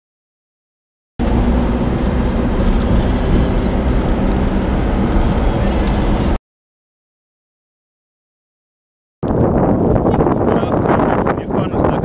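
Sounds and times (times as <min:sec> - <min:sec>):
motor vehicle engine rumbling: 0:01.2 - 0:06.4.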